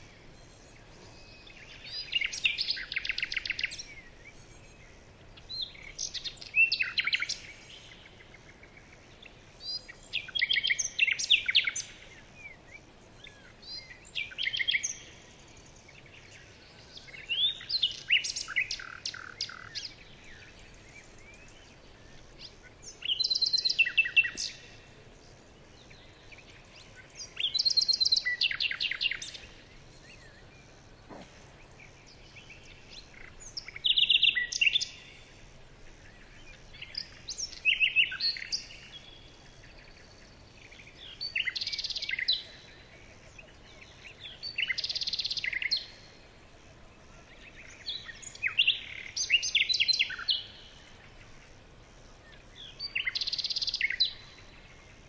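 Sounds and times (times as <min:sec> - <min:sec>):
bird buzzy chattering song: 0:00.0 - 0:46.2, 0:47.3 - 0:55.0.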